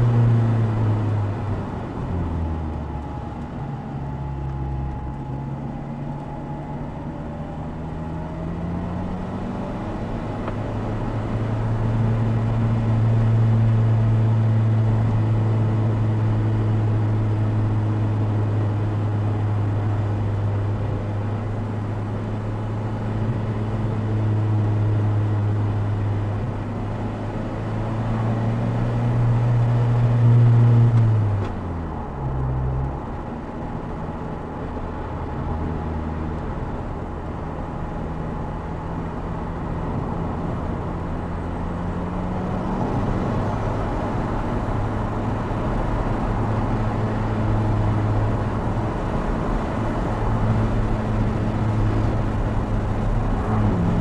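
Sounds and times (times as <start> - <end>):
car engine revving: 39.5 - 54.0.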